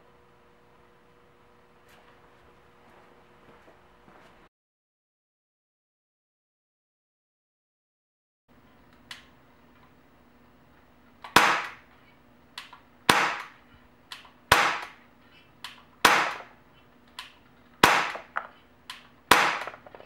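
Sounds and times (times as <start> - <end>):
air pistol shots: 11.2 - 11.9, 13.0 - 15.0, 15.6 - 16.6, 17.2 - 20.0.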